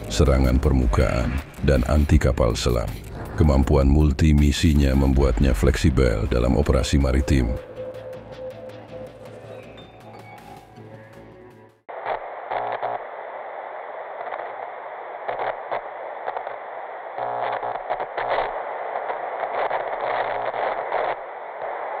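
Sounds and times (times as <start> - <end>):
crackling static hiss: 0.0 - 7.6, 11.9 - 22.0
background music: 0.0 - 11.8.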